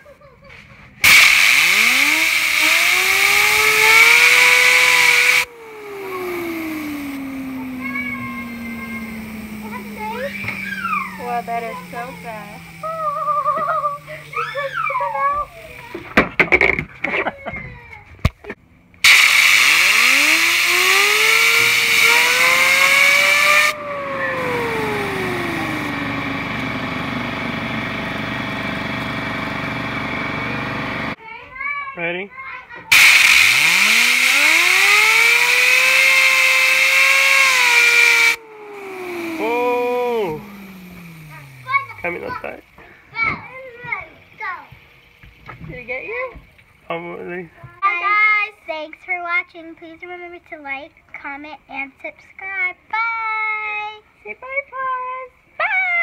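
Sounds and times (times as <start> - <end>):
compressed air blow gun hissing: 1.0 - 14.6, 19.1 - 25.9, 32.9 - 42.2
fidget spinner whirring: 1.0 - 17.4, 18.2 - 28.1, 32.9 - 47.2.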